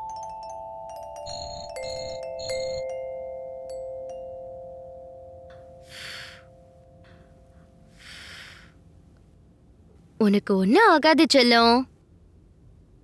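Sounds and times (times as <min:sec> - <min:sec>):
mallet notes ringing: 0:00.0 - 0:08.1.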